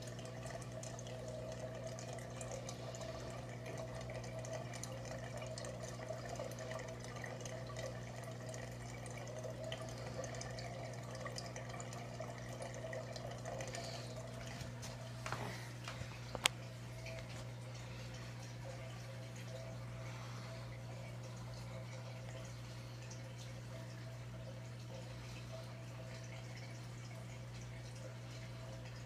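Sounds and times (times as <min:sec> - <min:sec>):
aquarium pump humming: 0:00.0 - 0:29.0
water trickling and bubbling: 0:00.0 - 0:29.0.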